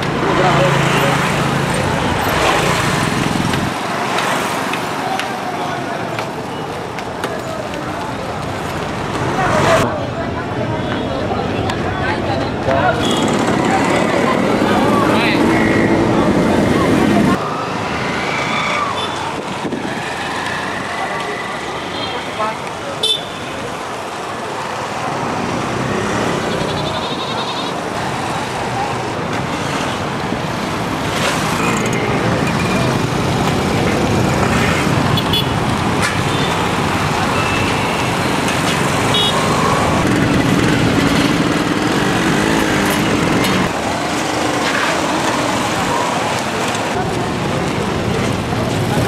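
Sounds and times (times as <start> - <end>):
cars passing: 0.0 - 49.0
motorcycles passing: 0.0 - 49.0.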